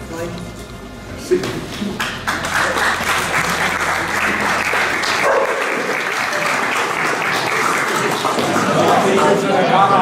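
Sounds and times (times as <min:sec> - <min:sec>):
audience applauding: 0:01.9 - 0:09.7.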